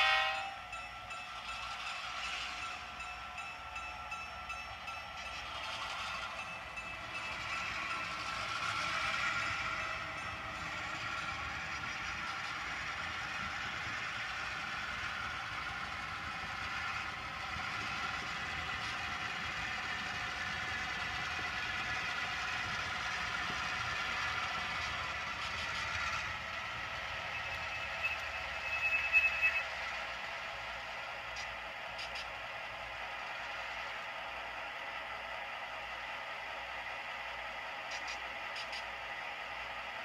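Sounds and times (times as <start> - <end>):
brief high squeal: 27.4 - 29.8.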